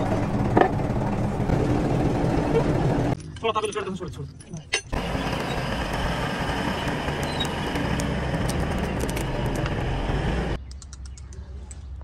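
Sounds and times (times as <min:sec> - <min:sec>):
bulldozer diesel engine running: 0:00.0 - 0:03.2, 0:04.9 - 0:10.6.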